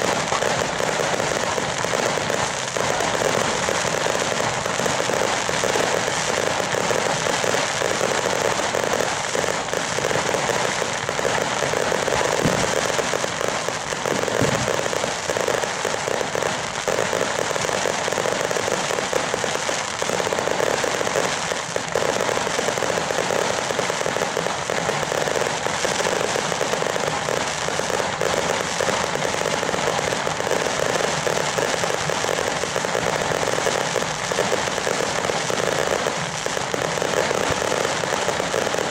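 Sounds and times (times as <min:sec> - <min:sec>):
fireworks crackling and popping: 0:00.0 - 0:38.9
deep firework thuds: 0:08.2 - 0:15.3.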